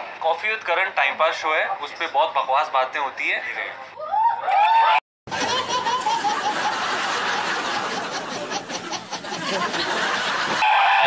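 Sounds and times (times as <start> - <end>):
dense laughter: 5.3 - 11.0.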